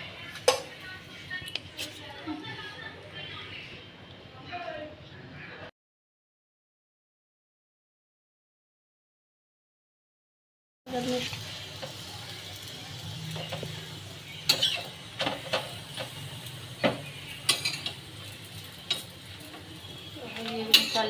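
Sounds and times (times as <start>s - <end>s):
bread sizzling in oil: 10.9s - 21.0s
metal spatula scraping pan: 14.5s - 16.2s.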